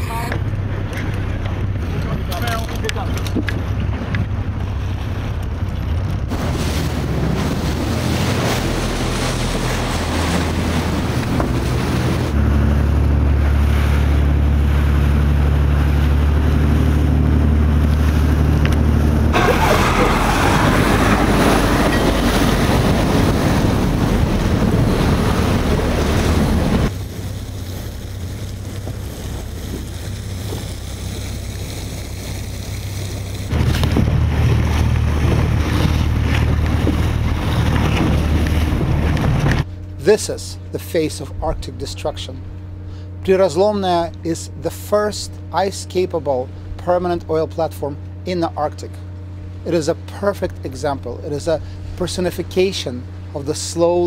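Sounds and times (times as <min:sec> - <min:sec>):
wind buffeting microphone: 0:00.0 - 0:39.7
outboard engines humming: 0:00.0 - 0:54.0
sea waves: 0:00.0 - 0:54.0.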